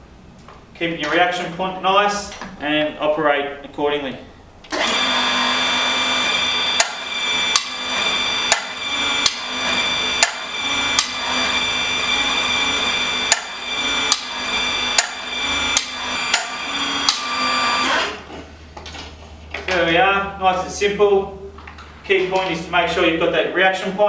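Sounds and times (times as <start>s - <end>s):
hydraulic pump running: 4.7s - 18.4s.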